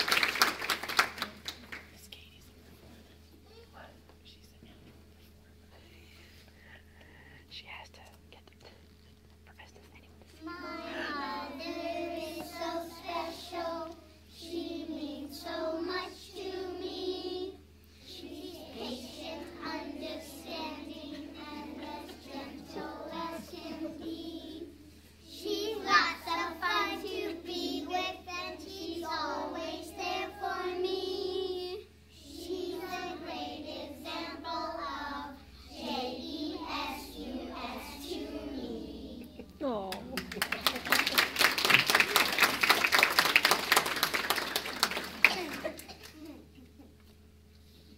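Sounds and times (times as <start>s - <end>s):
children singing together: 10.5s - 39.3s.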